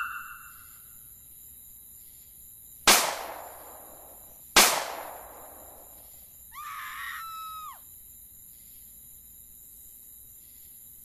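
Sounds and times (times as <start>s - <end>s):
loud sharp bangs: 2.9s - 5.8s
high-pitched scream: 6.5s - 7.8s.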